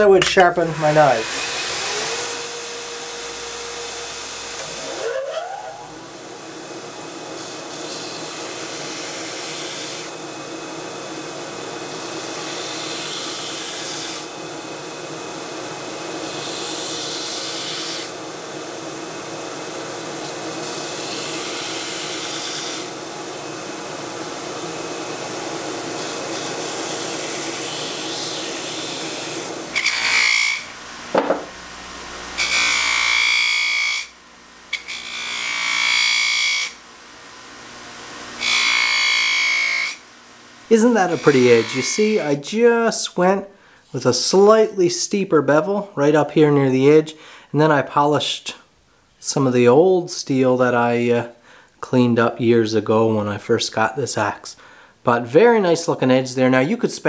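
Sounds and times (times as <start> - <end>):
belt grinder grinding metal: 0.0 - 42.4.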